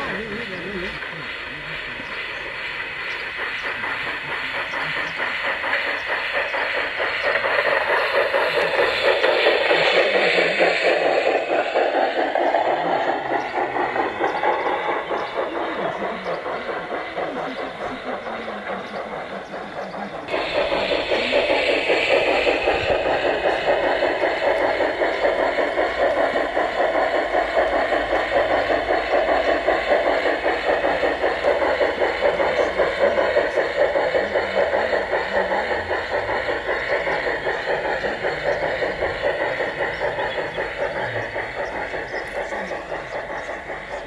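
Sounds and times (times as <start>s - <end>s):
model steam locomotive chuffing: 0.0s - 44.0s.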